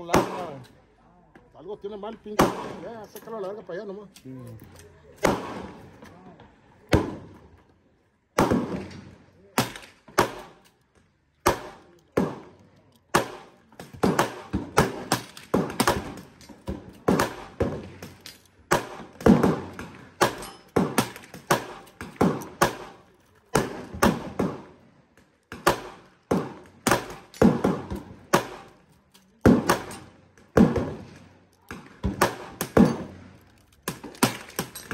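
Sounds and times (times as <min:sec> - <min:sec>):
gunshots: 0:00.0 - 0:00.6, 0:02.3 - 0:03.1, 0:05.2 - 0:06.0, 0:06.9 - 0:07.4, 0:08.4 - 0:10.6, 0:11.4 - 0:24.8, 0:25.5 - 0:34.9.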